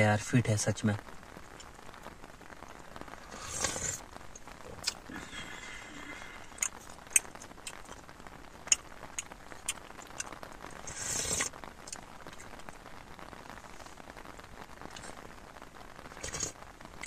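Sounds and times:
loud slurp: 3.3s - 4.0s, 10.9s - 11.5s.

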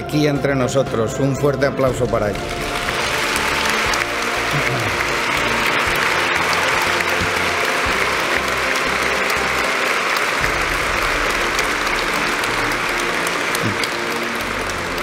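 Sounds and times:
crowd applauding: 2.3s - 15.0s.

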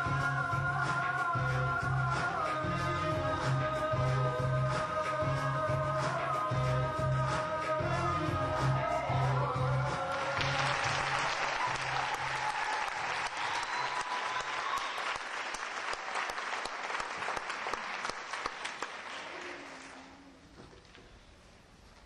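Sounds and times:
audience applause: 10.0s - 19.9s.

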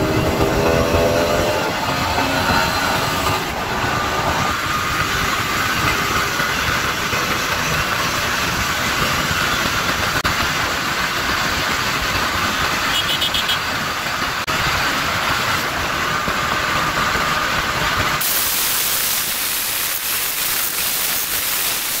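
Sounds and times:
motorcycle engine at speed: 0.0s - 18.2s
thin hiss: 18.2s - 22.0s.

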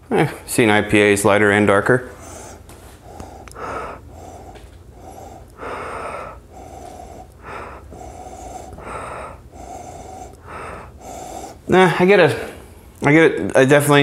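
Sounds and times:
faint breathing: 1.8s - 13.0s
man sniffing deeply: 2.2s - 12.7s.

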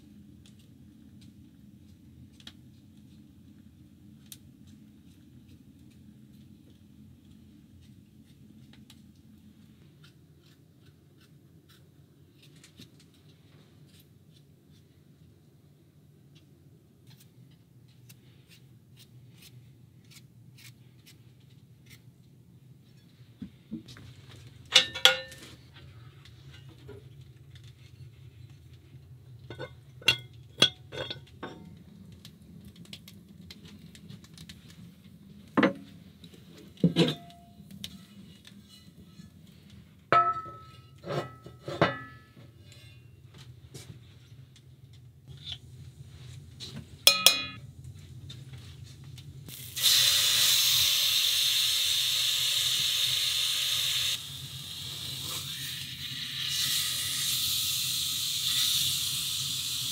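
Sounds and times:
cast iron clanking: 24.8s - 25.4s, 40.1s - 42.4s, 47.1s - 47.6s.

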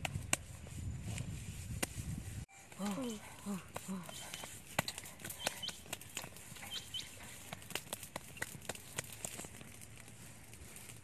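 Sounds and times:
sharp clicks and crackles: 2.8s - 11.0s.

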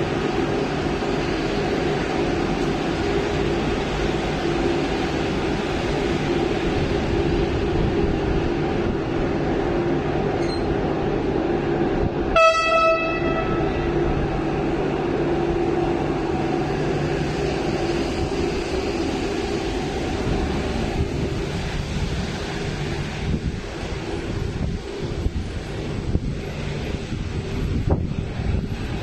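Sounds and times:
train rumbling through station: 0.0s - 29.0s
train horn blast: 12.3s - 14.0s.

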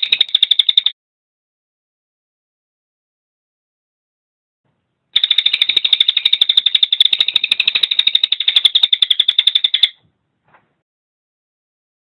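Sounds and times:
bird rattling call: 0.0s - 0.9s, 5.2s - 10.0s.

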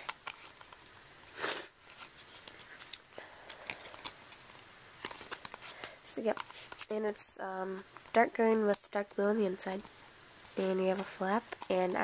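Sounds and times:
clicks crinkles and rustles of wallet: 1.9s - 6.9s.

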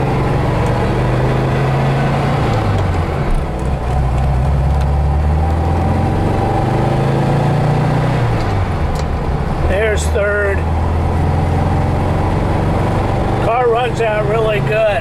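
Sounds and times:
car engine running in cabin: 0.0s - 15.0s.

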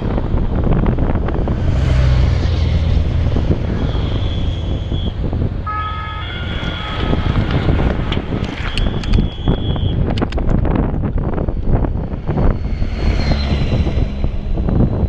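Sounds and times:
wind buffeting microphone: 0.0s - 15.0s
motorcycle passing by: 12.0s - 15.0s.

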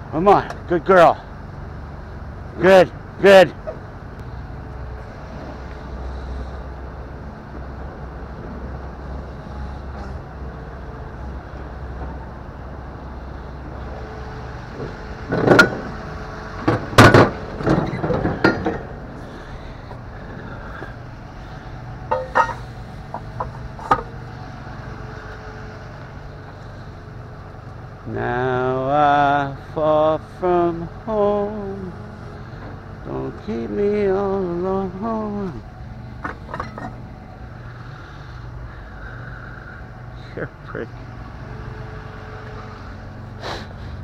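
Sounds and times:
truck engine idling: 0.0s - 44.0s
metal gear clanks and knocks: 15.3s - 15.9s, 16.6s - 19.0s, 22.1s - 24.1s, 36.2s - 37.0s.

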